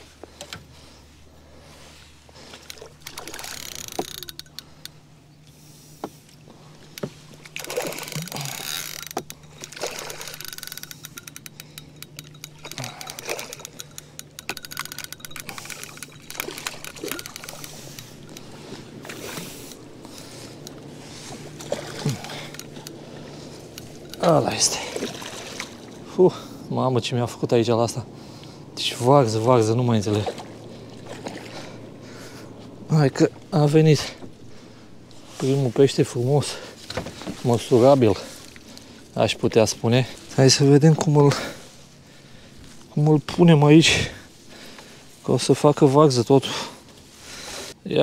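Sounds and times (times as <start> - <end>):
rustling and water splashing: 0.0 - 47.9
fishing tackle clicks: 2.6 - 5.5, 6.2 - 20.9, 21.5 - 24.6.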